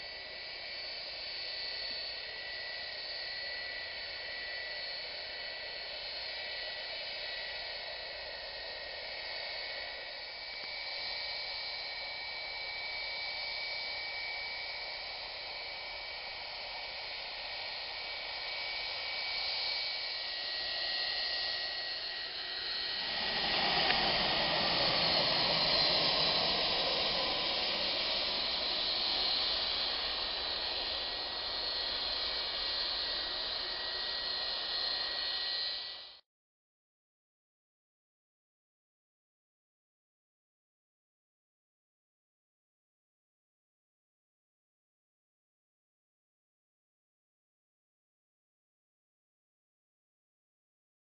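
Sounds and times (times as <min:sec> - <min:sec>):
jet engine deep roar: 0:00.0 - 0:36.2
jet engines high whine: 0:00.0 - 0:36.2.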